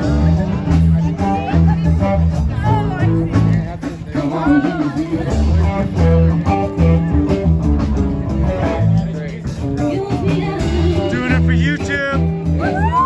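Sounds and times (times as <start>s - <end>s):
bass line: 0.0s - 13.0s
blues-rock band music: 0.0s - 13.0s.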